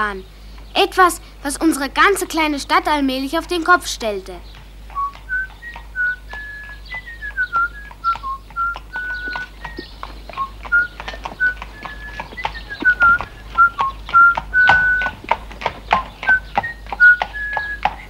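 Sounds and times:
horse hooves on hard road: 1.8 - 18.0
person whistling a tune: 5.0 - 15.2, 16.3 - 17.8.

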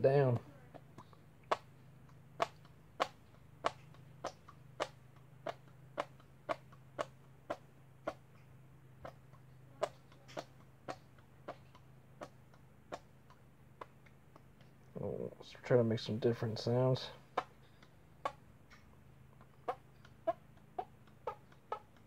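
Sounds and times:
hand fart popping noises: 0.2 - 14.8.

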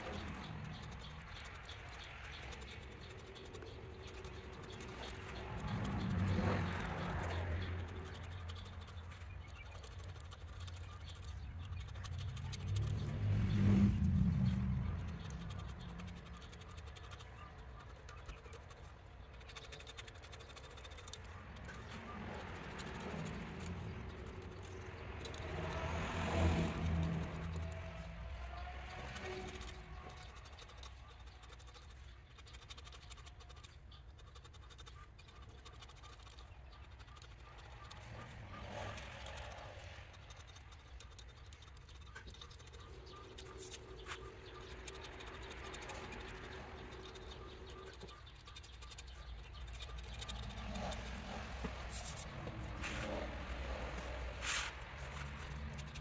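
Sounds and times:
blade scratching: 0.0 - 56.0.

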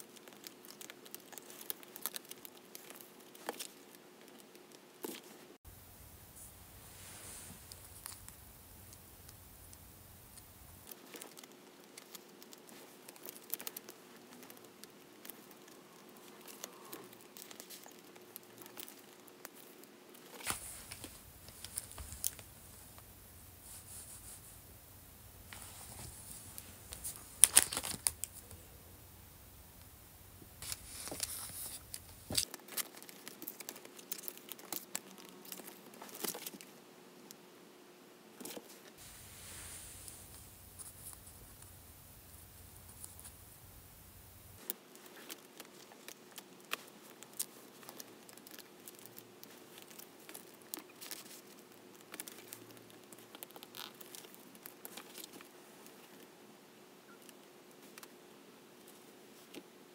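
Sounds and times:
plastic pockets crinkling: 6.4 - 36.7, 44.4 - 56.3.

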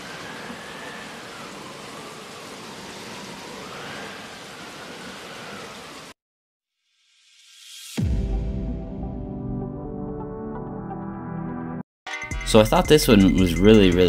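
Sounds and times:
steady hissing noise: 0.0 - 6.2.

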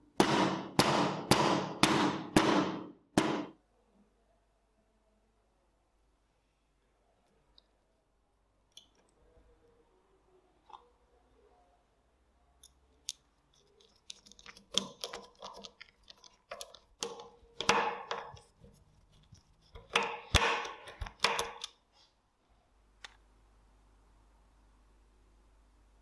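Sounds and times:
screwdriver clicking and scraping screws: 13.1 - 21.8.

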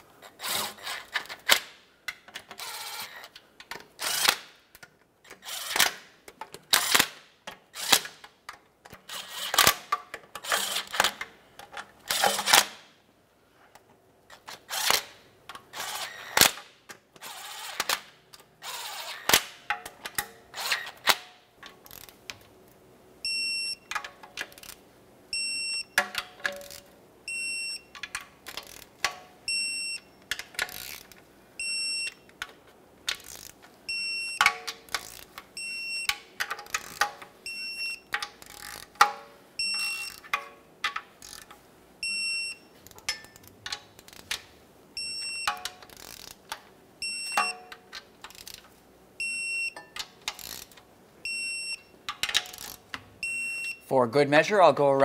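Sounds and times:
cordless driver whirring: 5.4 - 5.9
electronic beep: 23.3 - 23.9, 25.4 - 26.0, 27.3 - 27.9, 29.5 - 30.2, 31.6 - 32.2, 33.9 - 34.4, 35.6 - 36.2, 37.5 - 38.1, 39.6 - 40.2, 42.0 - 42.7, 45.0 - 45.6, 47.0 - 47.7, 49.2 - 49.8, 51.3 - 51.9, 53.2 - 53.8.

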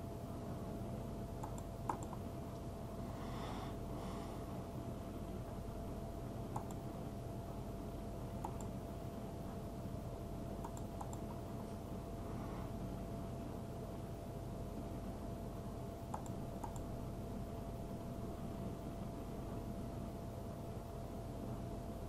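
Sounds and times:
electrical hum and hiss: 0.0 - 22.0
computer mouse clicks: 1.4 - 2.2, 6.5 - 6.9, 8.4 - 8.7, 10.6 - 11.4, 16.1 - 16.9.

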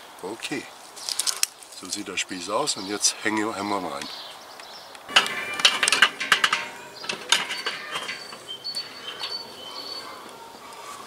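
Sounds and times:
metal spit clattering on metal ring: 5.1 - 10.0.

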